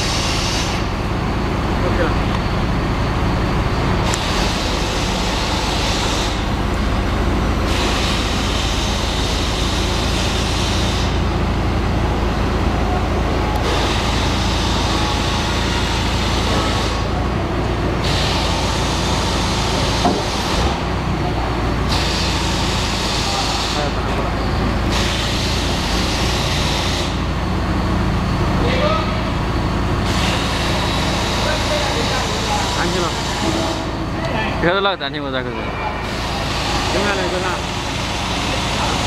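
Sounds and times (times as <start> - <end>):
hydraulic hiss: 0.0 - 0.9, 7.6 - 11.4, 21.9 - 24.1, 24.8 - 27.3
backhoe diesel engine running: 0.0 - 39.0.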